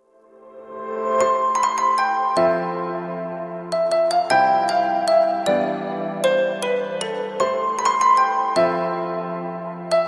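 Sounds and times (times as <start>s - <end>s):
soft keyboard music: 0.0s - 10.0s.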